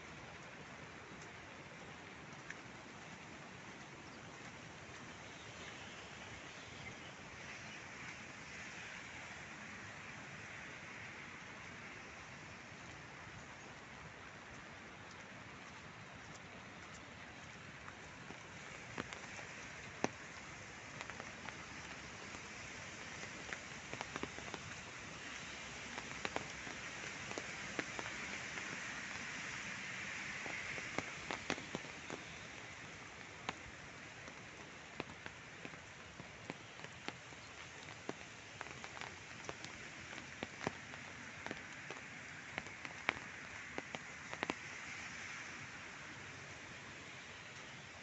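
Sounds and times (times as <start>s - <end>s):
rain on gravel and leaves: 0.0s - 48.0s.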